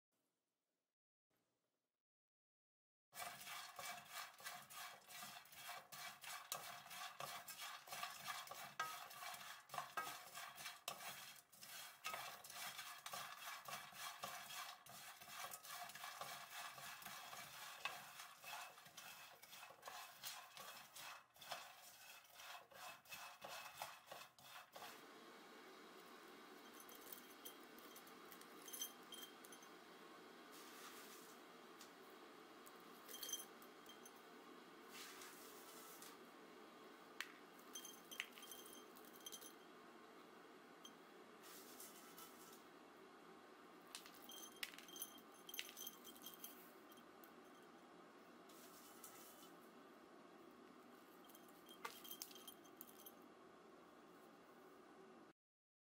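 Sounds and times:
light clinks: 0:26.6 - 0:29.8, 0:33.0 - 0:34.2, 0:44.0 - 0:47.1, 0:51.2 - 0:53.2.

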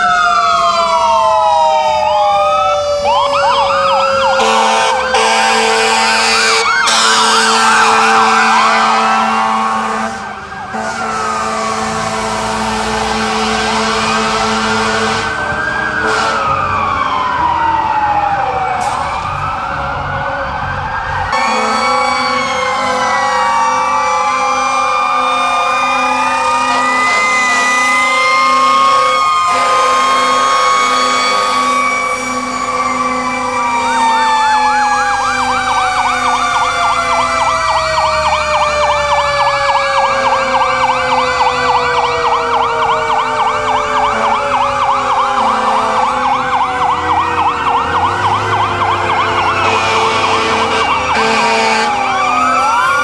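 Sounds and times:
fast siren yelp: 0:00.0 - 0:53.0
fire truck sirens wailing: 0:00.0 - 0:53.0.

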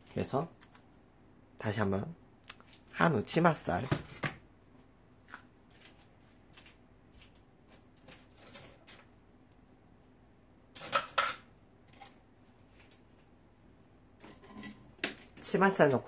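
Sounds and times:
kitchen items clicking and knocking: 0:10.8 - 0:12.2.

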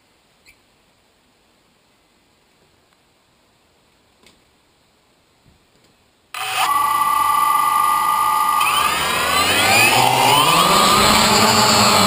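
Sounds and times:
drone motors whining: 0:06.4 - 0:12.0.

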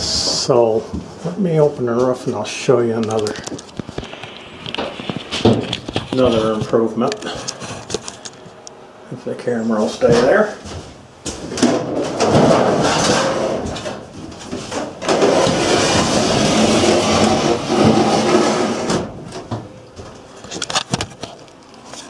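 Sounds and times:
casters rolling on metal track: 0:11.6 - 0:14.0, 0:14.6 - 0:19.2.

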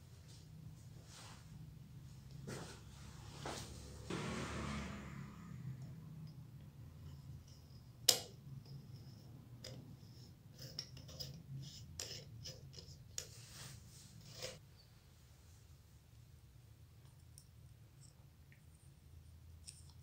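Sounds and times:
metal housing clicks and scrapes: 0:07.0 - 0:13.4.

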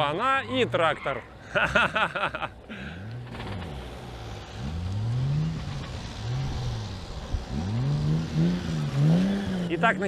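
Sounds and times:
car engine revving: 0:02.9 - 0:10.0.

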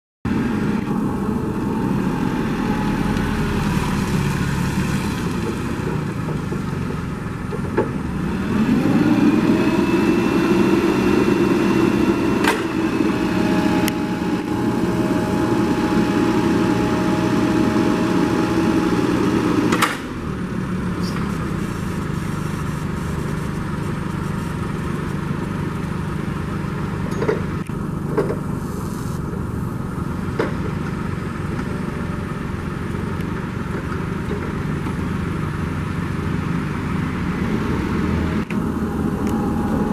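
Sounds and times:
forklift engine running: 0:00.3 - 0:39.9
hydraulic whine: 0:08.0 - 0:20.2, 0:20.9 - 0:25.8, 0:37.4 - 0:39.9.

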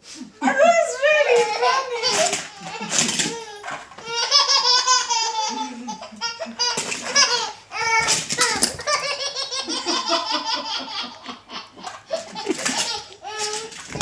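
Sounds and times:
baby laughing: 0:01.2 - 0:14.0.

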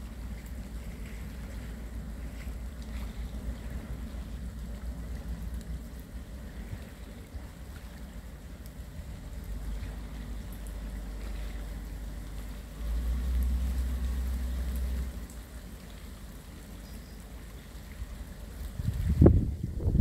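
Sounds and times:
wind buffeting microphone: 0:18.6 - 0:20.0.

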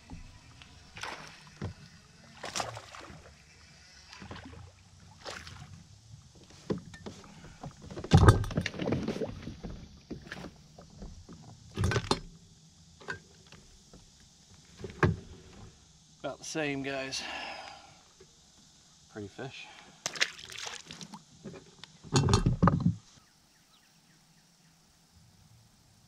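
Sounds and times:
knocks and rattles on kayak: 0:06.3 - 0:12.3, 0:21.4 - 0:23.0.

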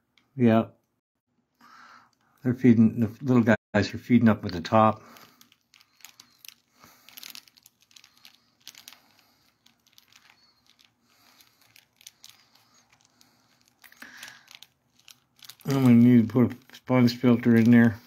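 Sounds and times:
faint crinkling: 0:04.4 - 0:18.0.

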